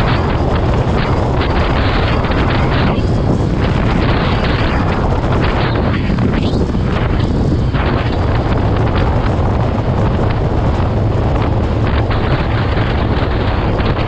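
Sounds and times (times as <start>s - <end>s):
low vehicle engine hum: 0.0s - 14.0s
wind noise on microphone: 0.0s - 14.0s.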